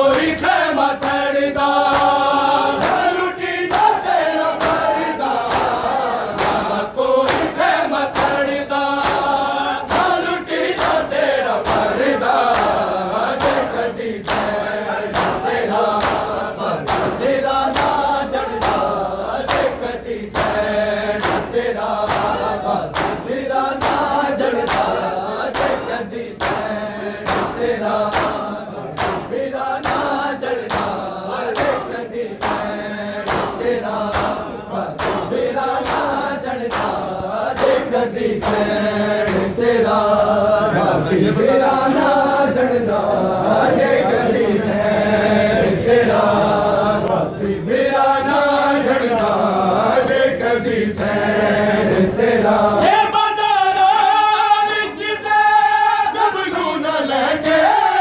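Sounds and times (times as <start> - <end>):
men chanting in unison: 0.0 - 58.0
hands slapping chests: 0.1 - 40.4, 49.0 - 49.4.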